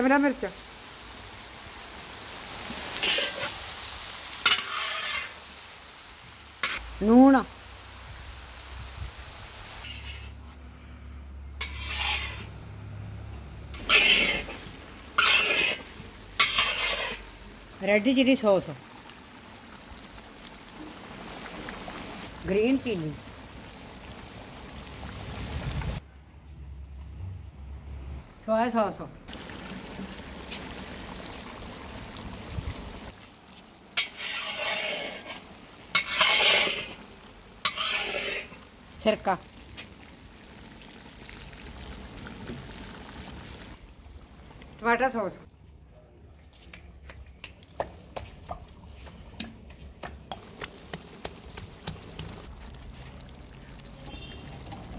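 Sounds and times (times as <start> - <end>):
vegetables sizzling in a pan: 0.0 - 10.4, 11.6 - 12.5, 13.7 - 26.0, 29.3 - 43.8
metal spatula scraping in wok: 3.0 - 3.6, 4.4 - 5.4, 9.8 - 10.6, 11.5 - 12.6, 13.7 - 17.3, 34.0 - 37.0, 37.6 - 38.6.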